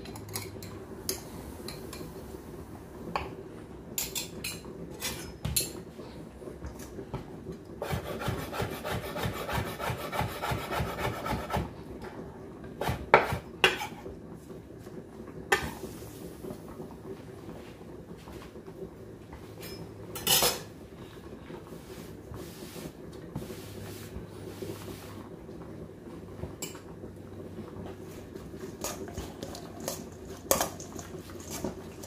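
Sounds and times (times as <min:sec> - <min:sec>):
knife chopping on cutting board: 0:07.8 - 0:11.7.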